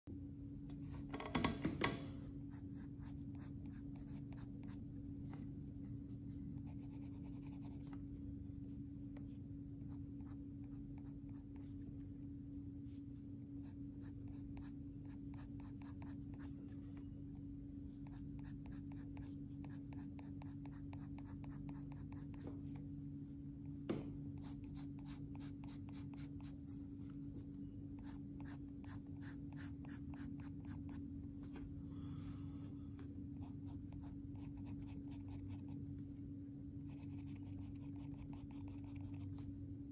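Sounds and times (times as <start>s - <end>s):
pencil scratching on paper: 2.5s - 4.8s, 6.6s - 8.0s, 13.6s - 17.0s, 18.0s - 22.5s, 24.4s - 26.7s, 36.9s - 39.4s.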